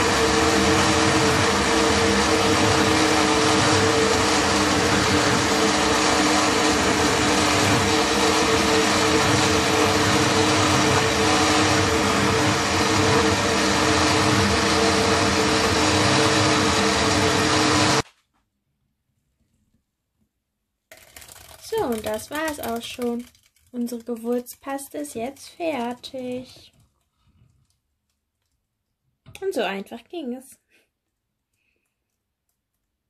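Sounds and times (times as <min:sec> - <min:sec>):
blender motor grinding: 0:00.0 - 0:18.0, 0:20.9 - 0:23.4.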